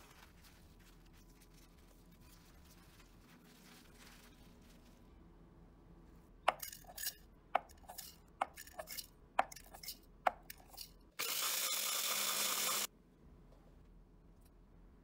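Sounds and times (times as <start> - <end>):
food chopper grinding: 11.2 - 12.9.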